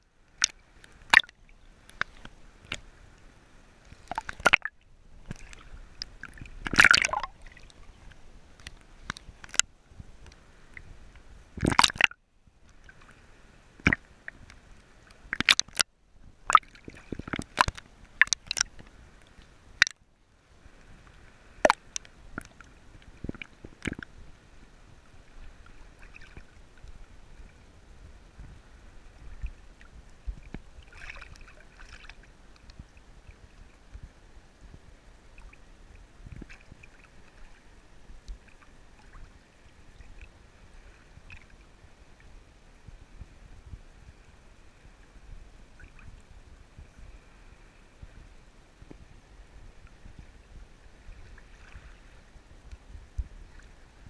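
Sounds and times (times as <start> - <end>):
sea waves splashing: 0.3 - 12.2.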